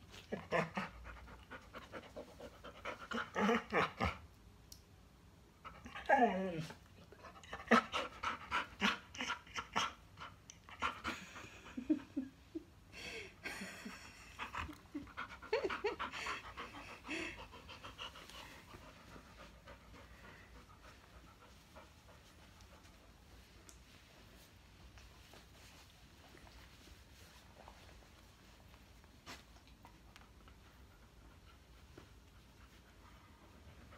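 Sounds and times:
dog panting: 0:14.3 - 0:23.5.

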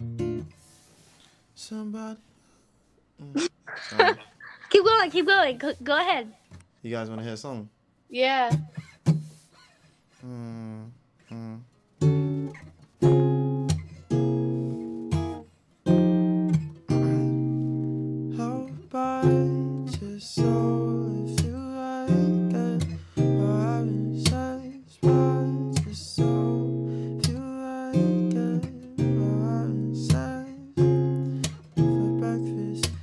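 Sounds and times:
acoustic guitar strummed chords: 0:00.0 - 0:01.0, 0:12.0 - 0:33.0
person singing softly: 0:10.2 - 0:11.7, 0:18.3 - 0:30.8.

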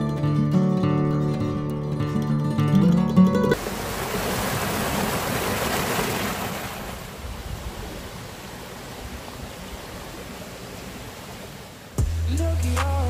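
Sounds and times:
stream splashing over rocks: 0:03.6 - 0:12.0.

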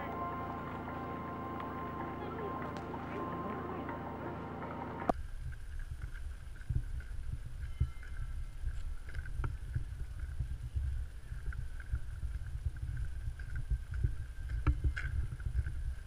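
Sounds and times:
faint high tone: 0:00.0 - 0:05.1
wind rumbling on microphone: 0:05.1 - 0:16.0.

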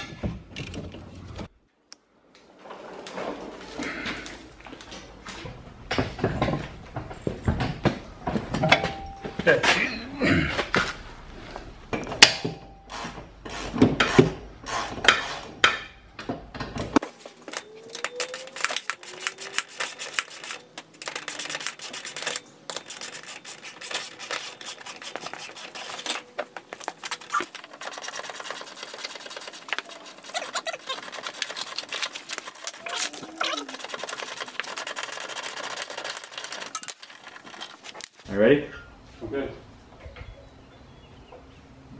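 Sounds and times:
metal scraping: 0:17.1 - 0:38.2
metal clinks: 0:36.0 - 0:38.2.

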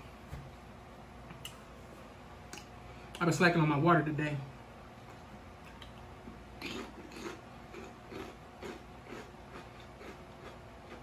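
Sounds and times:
person chewing food: 0:05.6 - 0:11.0.

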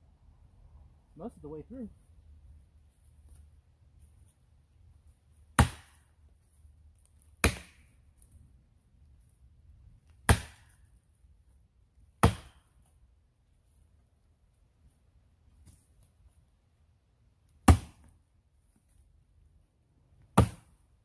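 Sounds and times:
axe chopping into tree trunk: 0:05.5 - 0:06.1, 0:07.4 - 0:07.9, 0:10.2 - 0:10.8, 0:12.2 - 0:12.7, 0:17.6 - 0:18.1, 0:20.3 - 0:20.8.

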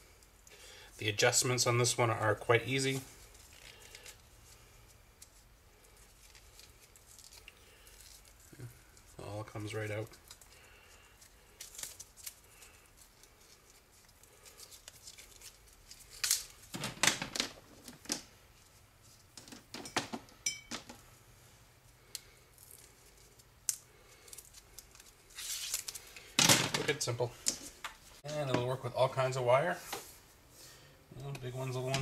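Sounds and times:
cable rustling and clicking: 0:09.9 - 0:18.3.

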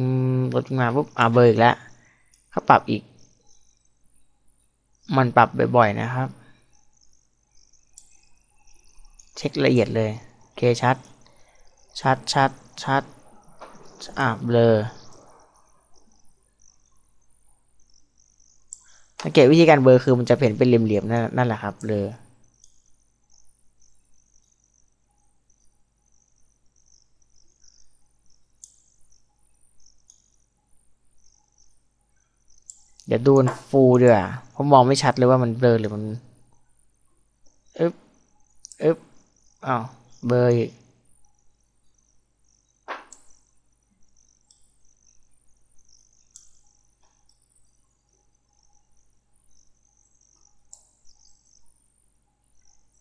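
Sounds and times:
faint insect chirps: 0:00.0 - 0:53.0
low steady hum: 0:00.0 - 0:53.0
faint clicks: 0:07.8 - 0:09.4, 0:18.6 - 0:19.4, 0:21.8 - 0:23.0, 0:27.6 - 0:30.4, 0:31.2 - 0:34.2, 0:42.8 - 0:45.0, 0:45.9 - 0:48.0, 0:49.5 - 0:51.2.

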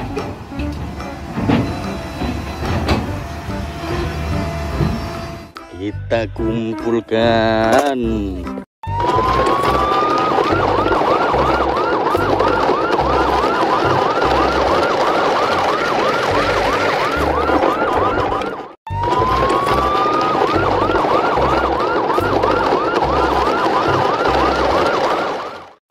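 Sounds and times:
electronic siren yelping: 0:08.8 - 0:25.8.

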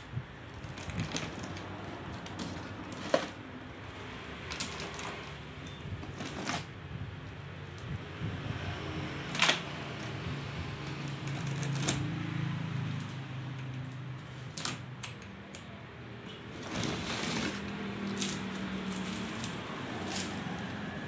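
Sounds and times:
cardboard rustling: 0:06.0 - 0:06.7, 0:16.5 - 0:20.9.

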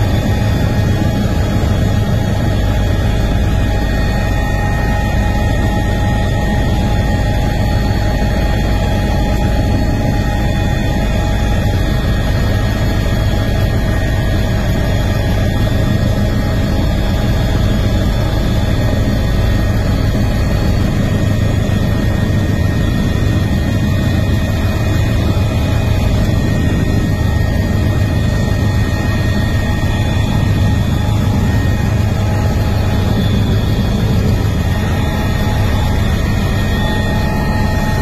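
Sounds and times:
aircraft engine drone in cabin: 0:00.0 - 0:38.0.

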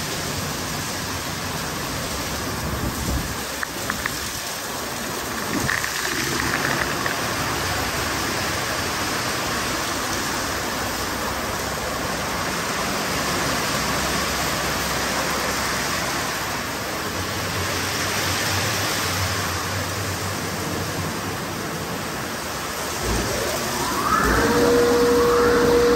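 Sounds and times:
car wash water rushing: 0:00.0 - 0:25.9
low hum: 0:22.9 - 0:25.9.

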